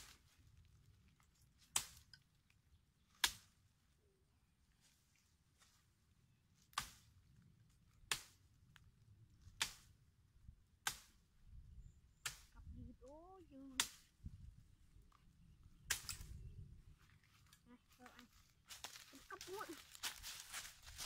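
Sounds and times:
machete chopping branches: 1.6s - 2.0s, 3.2s - 3.5s, 6.7s - 7.1s, 8.1s - 8.4s, 9.6s - 9.9s, 10.8s - 11.2s, 12.2s - 12.5s, 13.8s - 14.1s, 15.9s - 16.3s
person's short voice: 19.1s - 19.8s.

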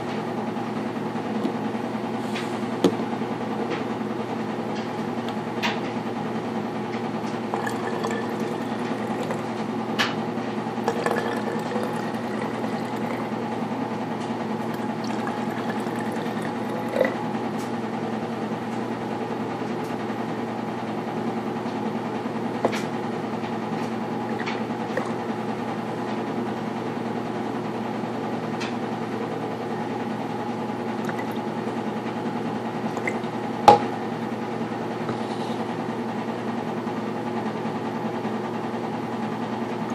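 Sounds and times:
steady low hum: 0.0s - 27.8s
liquid pouring into plastic bottles: 7.5s - 9.6s, 10.9s - 13.3s.

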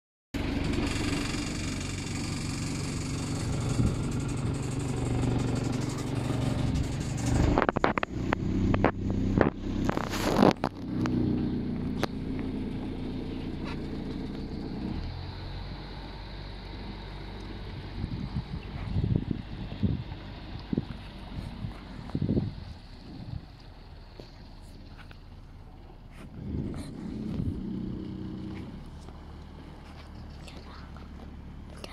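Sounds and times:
loud irregular noise bursts: 0.4s - 10.9s
diesel engine running: 0.4s - 31.9s.

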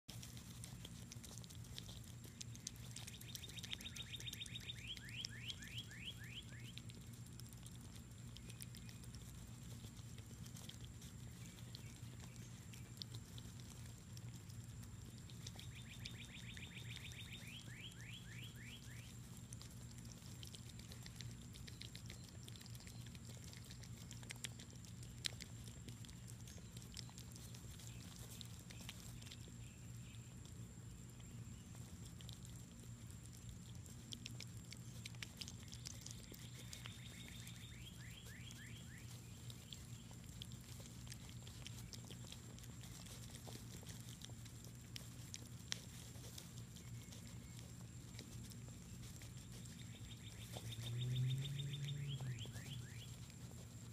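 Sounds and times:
animals chewing wet clicks: 0.0s - 53.9s
bird trilling song: 3.1s - 6.7s, 15.7s - 19.1s, 49.9s - 53.1s.

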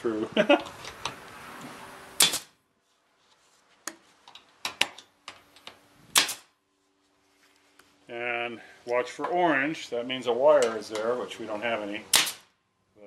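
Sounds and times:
pneumatic stapler firing: 2.2s - 2.5s, 6.1s - 6.5s, 12.1s - 12.5s.

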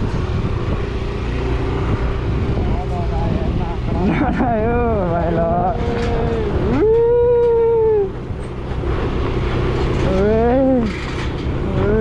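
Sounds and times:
scooter engine humming: 0.0s - 12.0s
person's long vocal calls: 5.5s - 8.2s, 11.6s - 12.0s.

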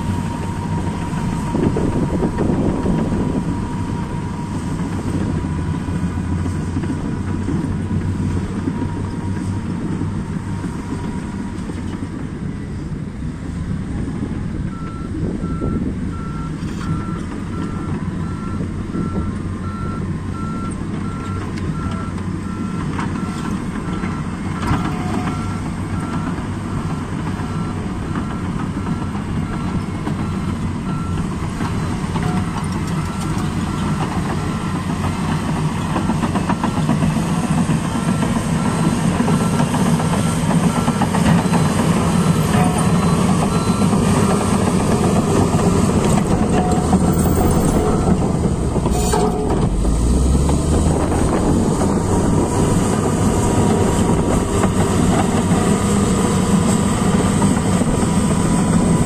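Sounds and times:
bulldozer diesel engine: 0.0s - 59.0s
reversing alarm beeping: 14.7s - 50.4s.

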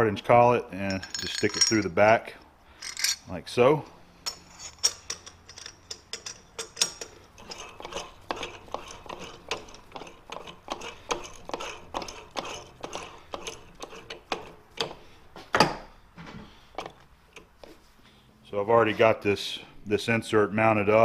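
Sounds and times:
metallic clicks and clinks: 0.8s - 2.0s, 2.8s - 3.4s, 4.2s - 7.7s.

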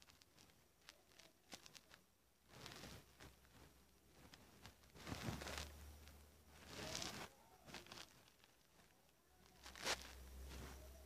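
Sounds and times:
cloth rustling on microphone: 0.0s - 11.0s.

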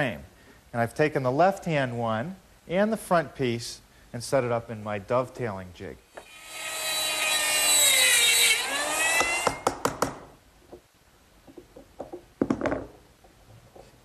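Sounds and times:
router motor whining: 6.2s - 9.7s.

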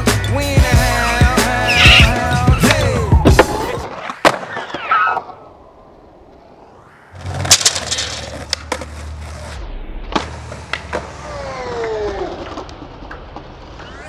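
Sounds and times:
skateboard wheels rumbling: 3.2s - 14.0s
high falling whine: 5.2s - 11.8s
skateboard clacking on ground: 7.2s - 9.5s.

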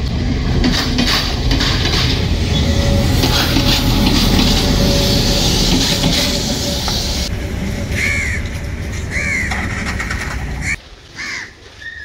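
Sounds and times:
steady low rumble: 0.0s - 10.8s
crow cawing: 7.9s - 12.0s.

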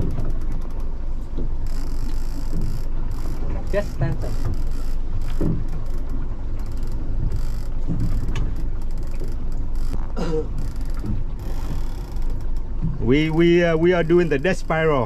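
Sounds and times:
boat engine running: 0.0s - 15.0s
fishing reel clicking: 1.6s - 10.0s, 10.6s - 12.6s.

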